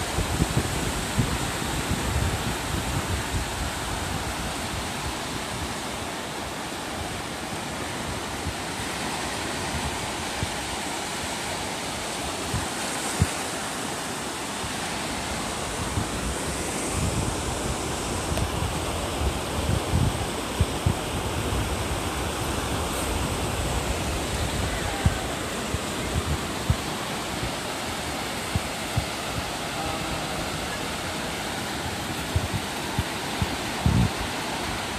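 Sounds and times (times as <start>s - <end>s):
surf washing up a beach: 0.0s - 34.9s
wind rumble on microphone: 0.0s - 34.9s.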